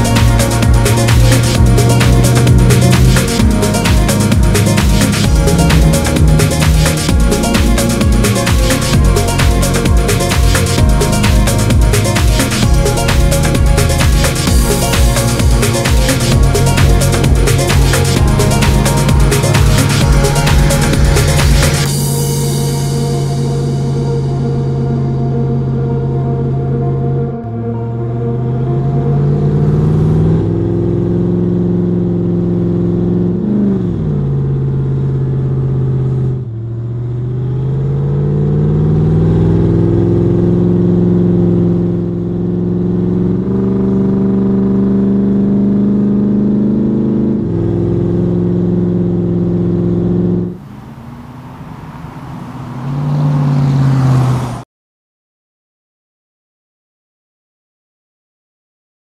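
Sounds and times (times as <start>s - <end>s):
truck engine accelerating: 0.0s - 54.6s.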